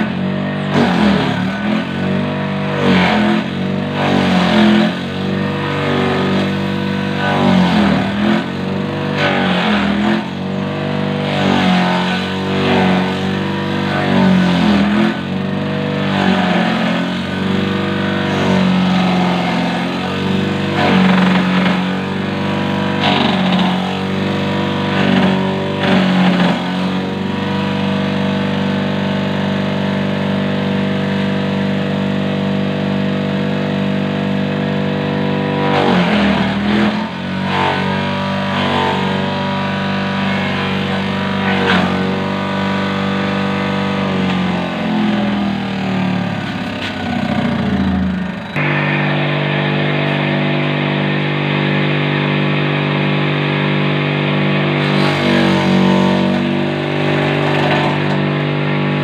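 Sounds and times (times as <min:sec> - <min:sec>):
electric motor humming: 0:40.3 - 0:53.1.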